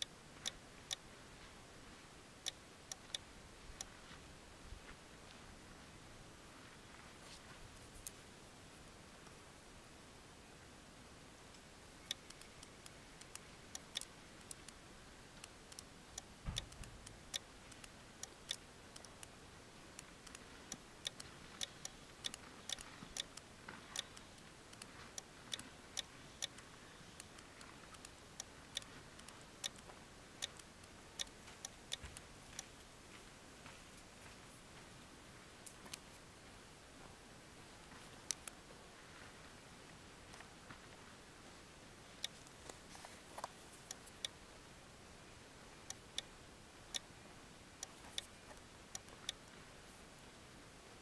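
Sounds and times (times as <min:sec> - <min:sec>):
clicks of radio controls: 0:15.4 - 0:19.3.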